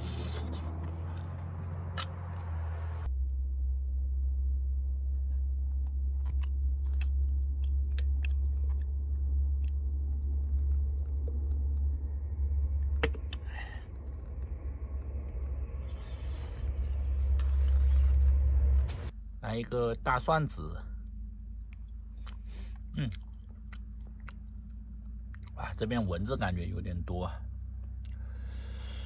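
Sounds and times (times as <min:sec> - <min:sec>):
person chewing: 0:00.0 - 0:02.5, 0:05.7 - 0:18.7, 0:21.5 - 0:25.6, 0:27.8 - 0:28.9
steady low rumble: 0:00.0 - 0:29.0.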